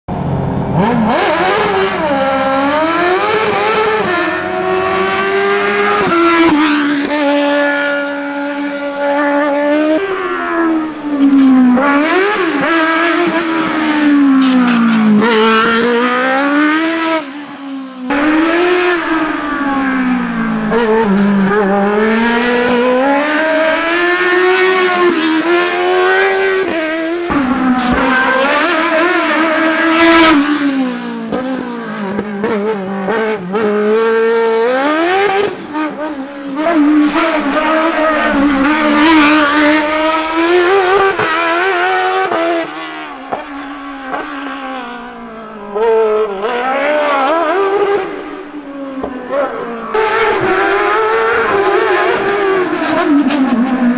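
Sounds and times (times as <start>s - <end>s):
race car engine revving: 0.1s - 53.9s.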